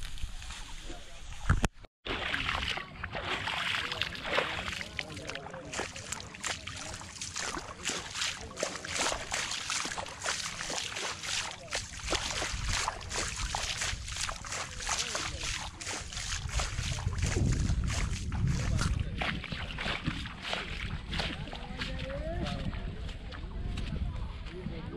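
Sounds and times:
footsteps splashing through mud: 2.1 - 24.7
steady low rumble: 11.7 - 24.9.

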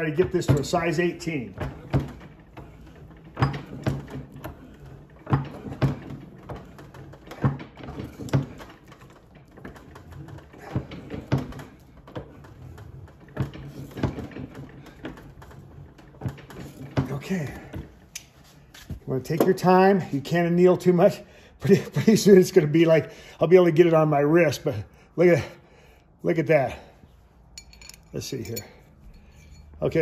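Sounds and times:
ring stretcher clicking and creaking: 0.0 - 19.9, 27.5 - 30.0.

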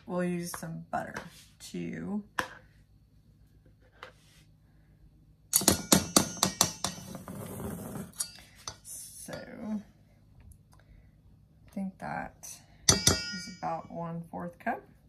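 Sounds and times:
spatula knocking on metal: 5.6 - 7.2, 12.9 - 13.7.

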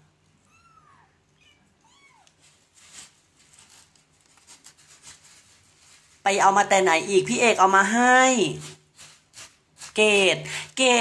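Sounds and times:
kitten meowing: 0.5 - 2.4
scratching in cat litter: 1.9 - 11.0.

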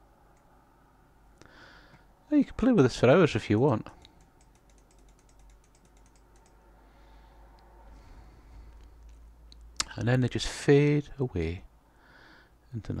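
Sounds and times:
low steady hum: 0.0 - 13.0
computer mouse clicks: 3.7 - 6.6.

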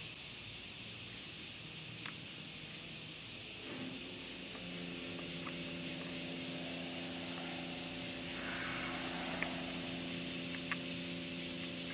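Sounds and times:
background hiss: 0.0 - 11.9
steady mechanical hum: 0.0 - 11.9
faint clicks: 4.5 - 11.0.

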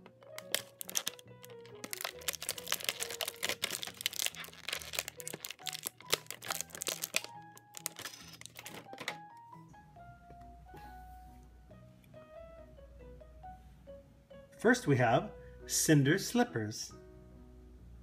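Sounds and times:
plastic packaging crinkling: 0.0 - 9.2
light background music: 0.0 - 18.0.

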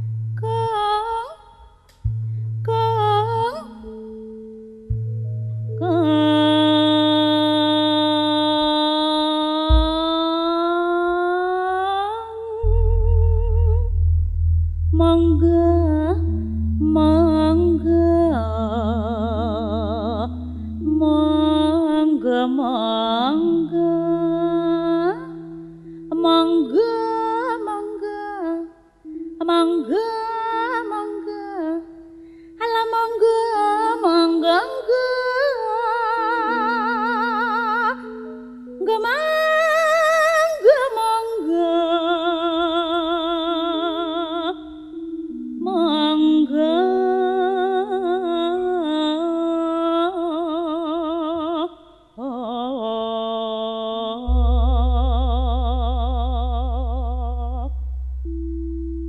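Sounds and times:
deep pulsing bass: 0.0 - 0.8, 2.0 - 3.9, 4.9 - 7.0, 9.7 - 10.2, 12.6 - 22.2, 54.3 - 59.0
woman singing slow melody: 0.0 - 14.0, 14.9 - 58.6
electronic keyboard accompaniment: 1.9 - 11.3, 12.6 - 49.9, 54.3 - 59.0.

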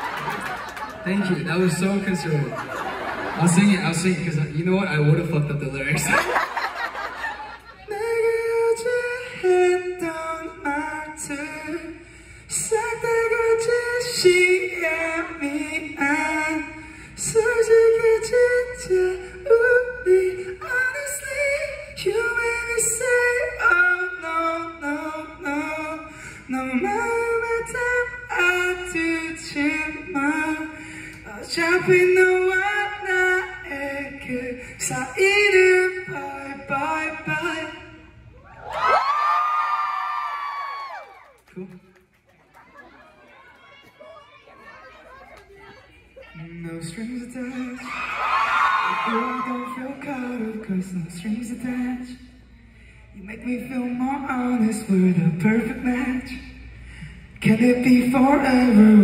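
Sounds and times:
man singing a cappella: 7.8 - 38.2, 46.4 - 48.0, 48.7 - 52.3, 53.2 - 56.7, 57.3 - 59.0.

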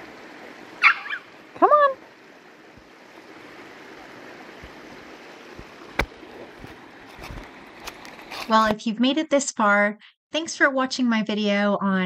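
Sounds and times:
creek water flowing: 0.0 - 8.5.

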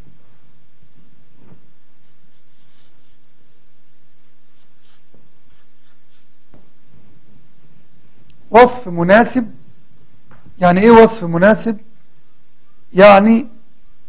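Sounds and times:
faint low hum: 0.0 - 14.0
marker scratching on paper: 2.0 - 6.4.

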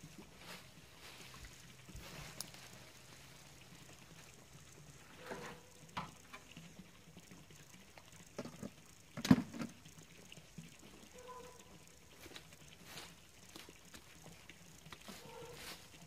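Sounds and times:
dry leaves rustling: 0.0 - 3.5, 15.0 - 16.0.

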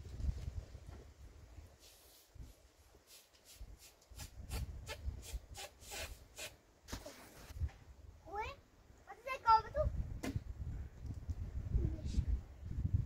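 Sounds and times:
balloon rubbing squeaks: 4.9 - 7.5.

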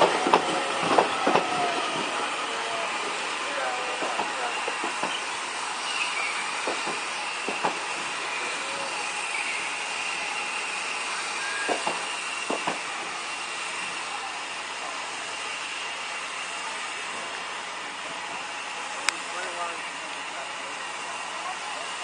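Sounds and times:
train wheels knocking on rail joints: 0.0 - 2.3, 3.8 - 5.4, 6.5 - 8.3, 11.6 - 13.2
steam hissing from locomotive: 0.0 - 22.0.

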